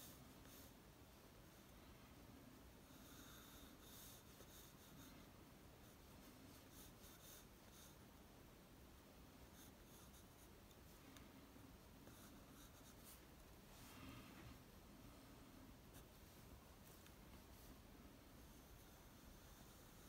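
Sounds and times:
pencil scratching on paper: 2.8 - 8.0, 9.4 - 10.6, 12.0 - 13.2, 18.4 - 20.0.

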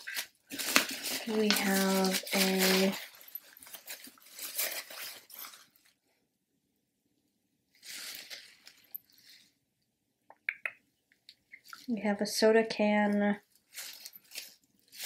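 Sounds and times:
plastic wrapping crinkling: 0.0 - 6.0, 7.8 - 9.4, 13.5 - 15.0.

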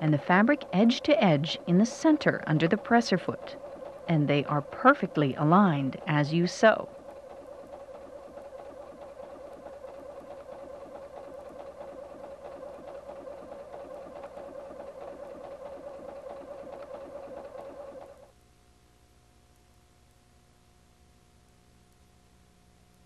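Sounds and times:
sewing machine sewing: 0.0 - 18.3.

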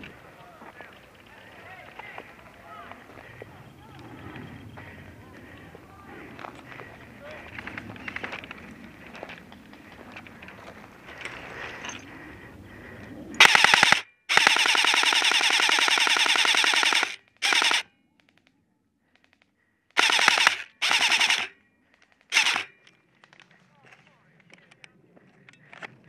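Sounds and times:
rustling through dry brush: 0.0 - 13.0
airsoft rifle automatic fire: 13.4 - 17.9, 20.0 - 21.5, 22.3 - 22.8.

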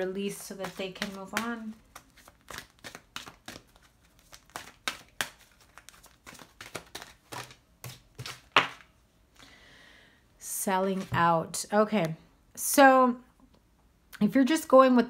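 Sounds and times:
cards being shuffled: 0.3 - 8.9.

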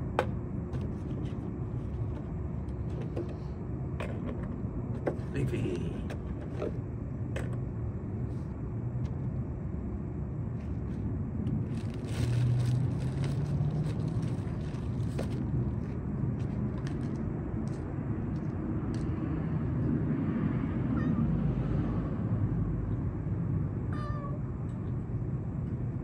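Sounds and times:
road traffic rumble: 0.0 - 26.0
vehicle passing: 10.8 - 23.8.

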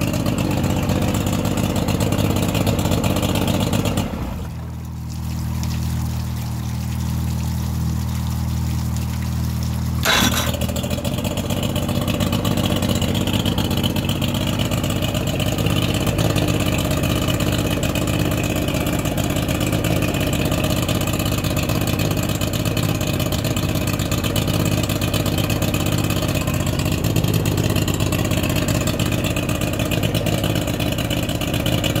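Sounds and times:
outboard motor running: 0.0 - 32.0.

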